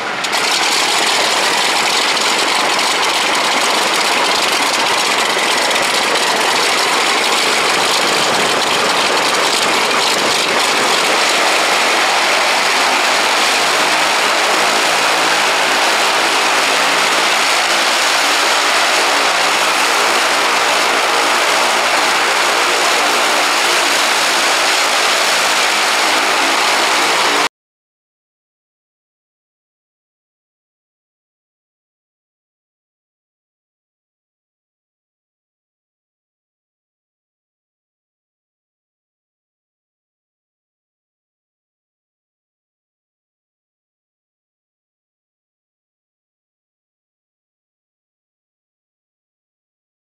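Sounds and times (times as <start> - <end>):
propeller aircraft engine droning: 0.0 - 27.5.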